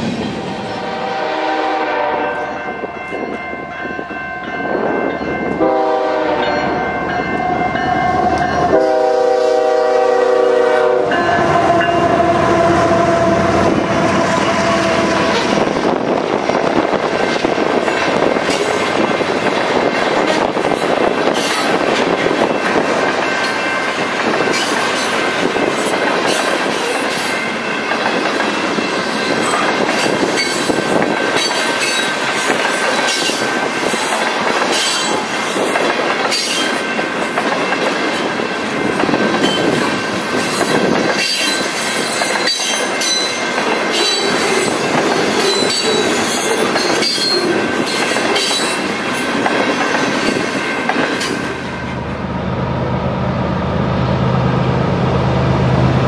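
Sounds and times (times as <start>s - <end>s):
steel wheels rumbling on rail: 0.0s - 56.0s
high wheel squeal: 40.5s - 48.8s.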